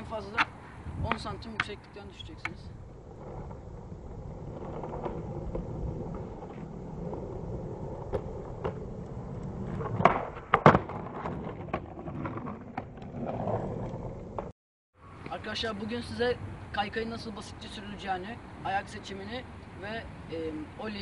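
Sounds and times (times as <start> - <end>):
skateboard wheels rolling: 0.1 - 14.5
skateboard sharp clacks: 0.3 - 1.8.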